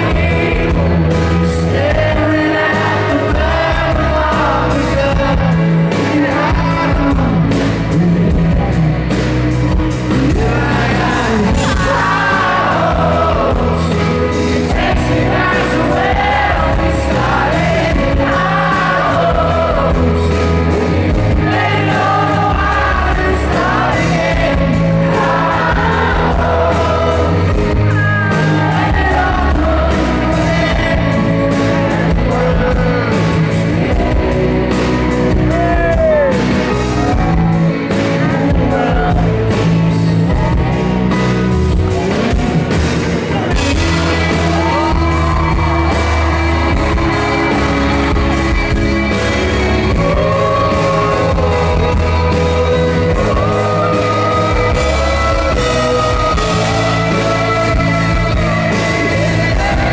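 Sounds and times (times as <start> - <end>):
bass line: 0.0 - 59.9
electric guitar: 0.0 - 59.9
keyboard: 0.0 - 59.9
man singing: 0.0 - 59.9.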